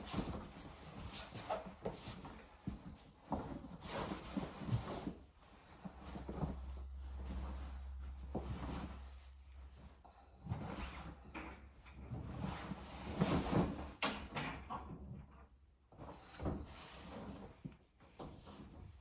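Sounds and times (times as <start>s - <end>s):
fabric rustling: 0.0s - 14.0s
low hum: 5.2s - 12.3s.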